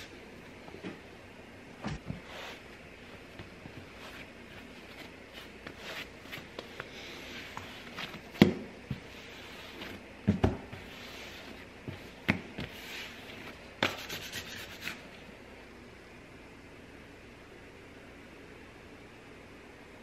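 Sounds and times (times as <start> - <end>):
hands rubbing dough on counter: 2.1 - 10.1, 10.7 - 15.1.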